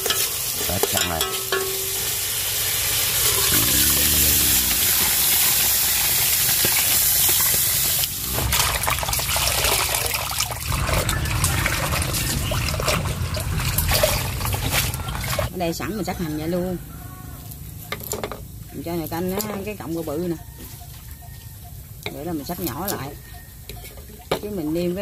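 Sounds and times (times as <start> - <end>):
water hissing in hot pot: 0.0 - 15.4.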